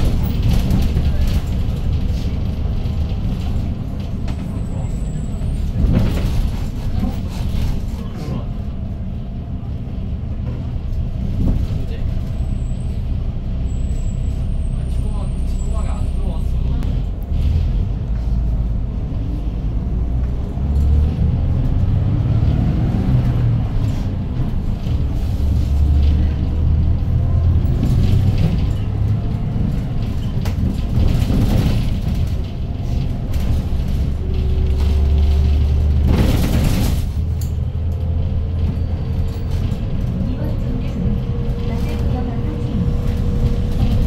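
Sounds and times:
bus engine rumbling: 0.0s - 44.0s.

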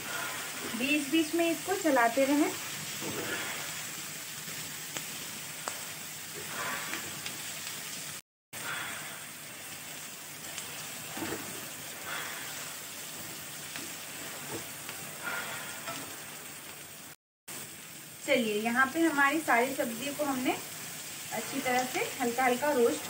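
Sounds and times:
vegetables sizzling in oil: 0.0s - 23.0s
wooden spatula scraping pan: 2.9s - 3.8s.

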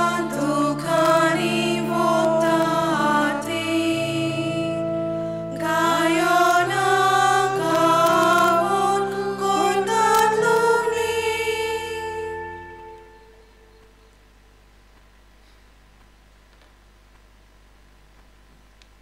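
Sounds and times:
church voices singing: 0.0s - 13.8s
accompanying chords: 0.0s - 14.0s.

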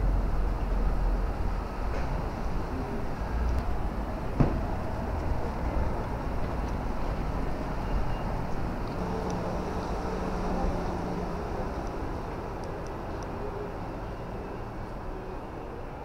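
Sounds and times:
road traffic rumble: 0.0s - 16.0s.

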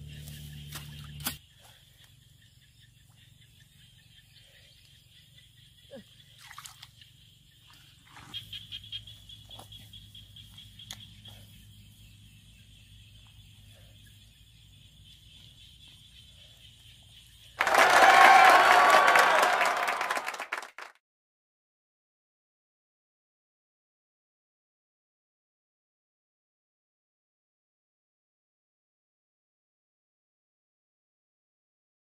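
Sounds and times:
wet mud squelching: 0.1s - 1.4s.

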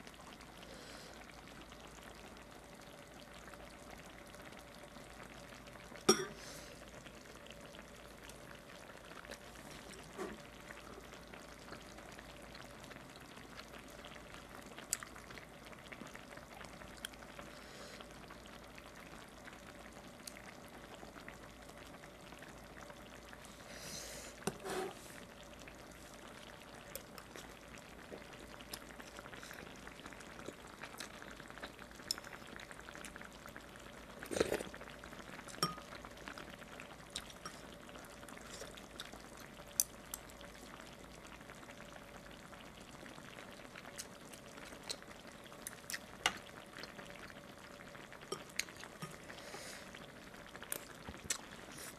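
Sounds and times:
faint hiss: 6.0s - 14.6s, 23.2s - 30.0s, 48.9s - 51.9s
slurp of broth: 34.2s - 34.8s.

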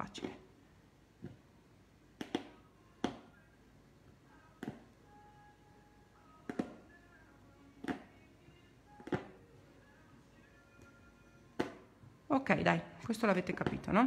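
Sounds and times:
needle tapping through fabric: 2.2s - 3.3s, 4.6s - 4.9s, 6.5s - 6.8s, 7.8s - 8.1s, 13.4s - 14.0s.

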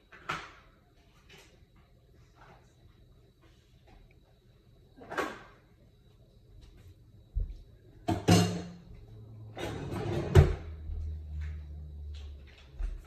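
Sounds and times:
cabinet doors sliding and knocking: 9.6s - 10.8s.

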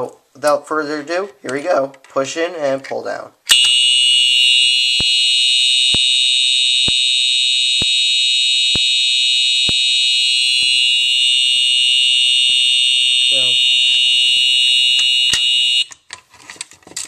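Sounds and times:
high-pitched electronic alarm horn: 3.5s - 15.9s.

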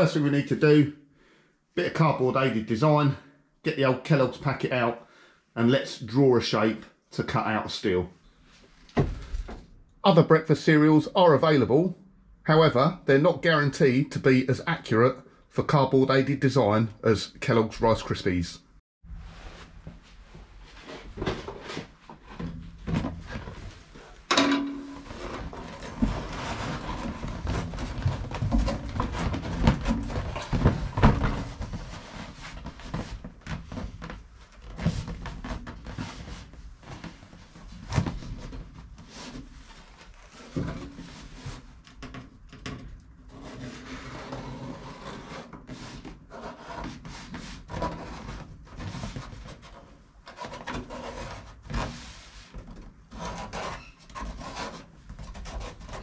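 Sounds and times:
cardboard rubbing and scraping: 19.2s - 24.2s, 25.1s - 41.8s, 43.3s - 56.0s.

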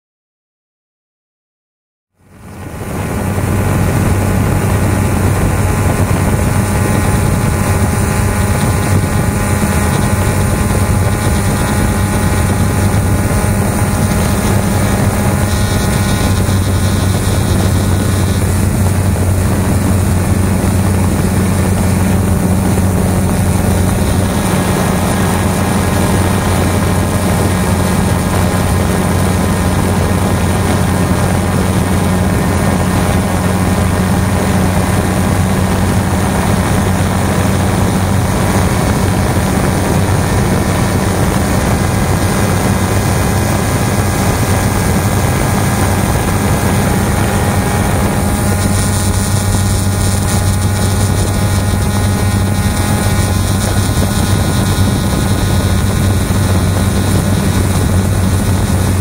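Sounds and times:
drone motors humming: 2.2s - 59.0s
rushing air: 2.2s - 59.0s.

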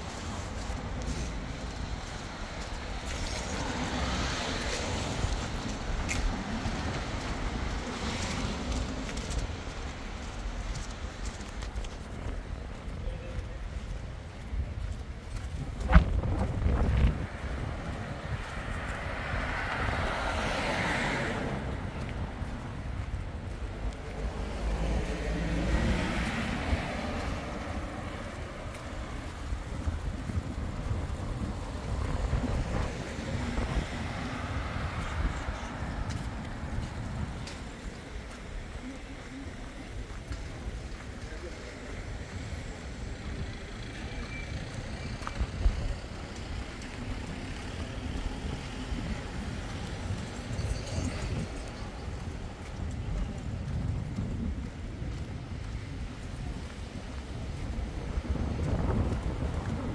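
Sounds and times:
street traffic: 0.0s - 59.9s
wind buffeting microphone: 4.7s - 20.1s, 20.9s - 41.4s, 45.0s - 59.9s.

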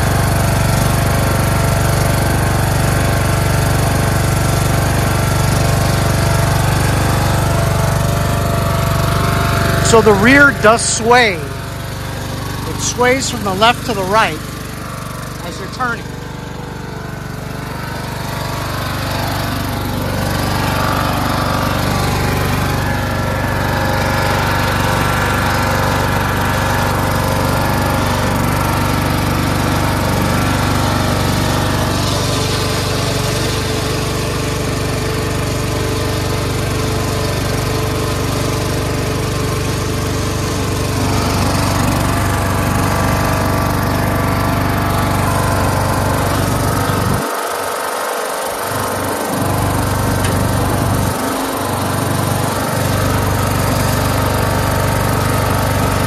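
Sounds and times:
lawn tractor engine running: 0.0s - 56.0s.

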